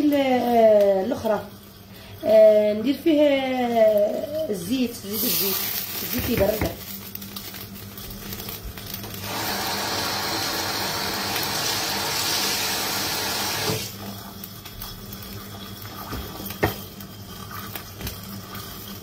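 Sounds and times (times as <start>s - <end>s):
water running from a tap: 9.0s - 19.0s.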